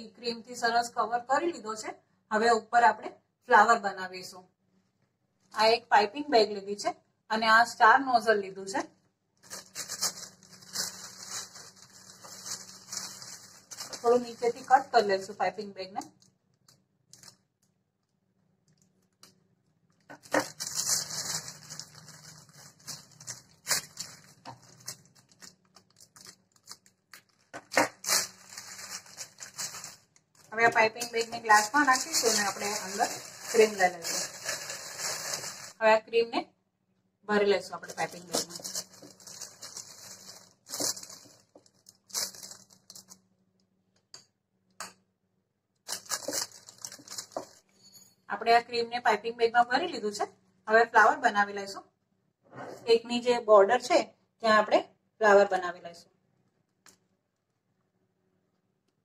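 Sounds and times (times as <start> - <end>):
plastic bag crinkling: 9.4 - 15.4, 16.0 - 17.6, 20.0 - 35.8, 37.8 - 43.2, 45.9 - 47.7.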